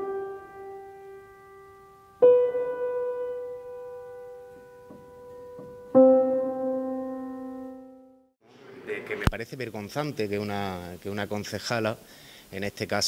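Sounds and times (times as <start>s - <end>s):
slow piano chords ringing: 0.0s - 8.4s.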